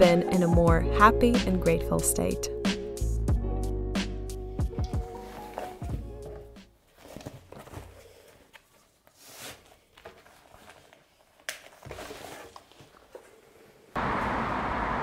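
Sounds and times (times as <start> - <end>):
bag rustling: 4.9 - 13.5.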